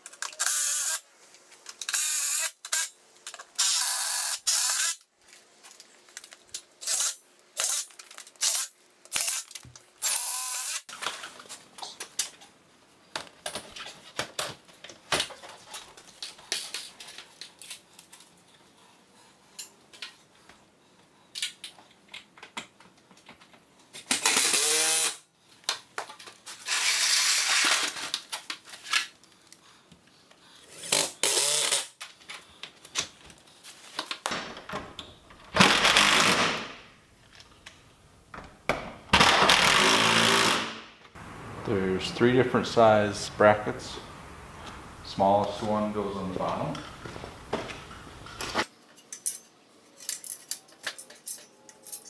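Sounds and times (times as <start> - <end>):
cordless drill driving screws: 35.6 - 36.6, 39.5 - 40.7.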